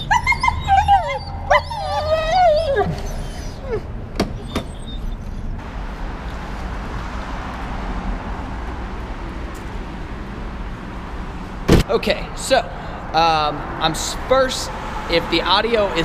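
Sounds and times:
dog whining: 0:00.0 - 0:05.6
steady rushing noise: 0:05.6 - 0:16.0.

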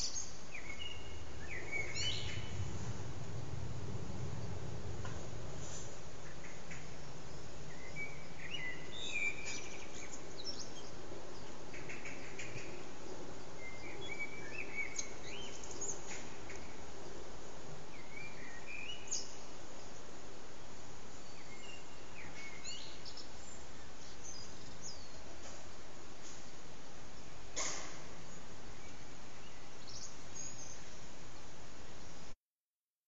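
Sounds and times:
blackbird singing: 0:00.0 - 0:02.8, 0:06.2 - 0:16.7, 0:17.9 - 0:19.4, 0:21.2 - 0:25.3
low background hum: 0:00.0 - 0:32.3.

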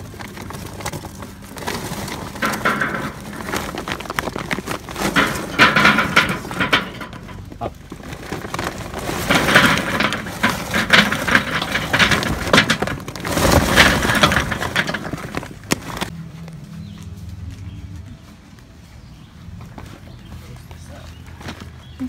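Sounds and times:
charcoal clattering onto grill grate: 0:00.0 - 0:16.1.

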